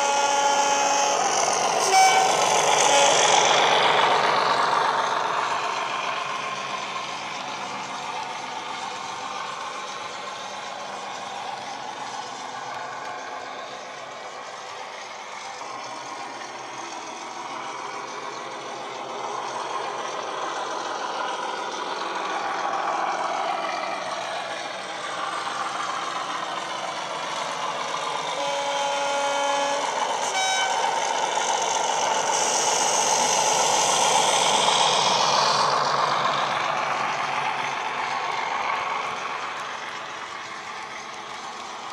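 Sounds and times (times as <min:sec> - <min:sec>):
two-tone locomotive horn: 0:00.0 - 0:03.7, 0:28.3 - 0:31.1
diesel locomotive engine running: 0:00.0 - 0:41.9.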